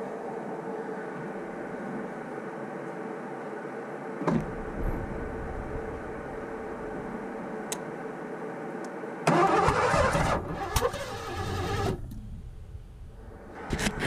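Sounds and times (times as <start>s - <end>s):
car engine cranking and running roughly: 9.3s - 12.1s.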